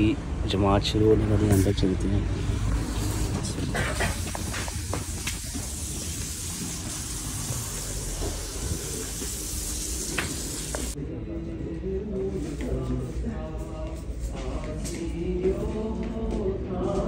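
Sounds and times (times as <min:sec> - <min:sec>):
steady hiss: 0:02.8 - 0:11.0.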